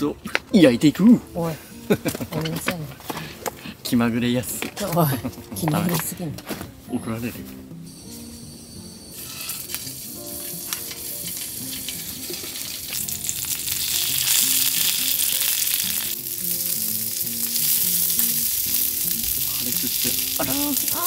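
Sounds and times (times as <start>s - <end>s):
sausages sizzling in a frying pan: 8.1s - 21.0s.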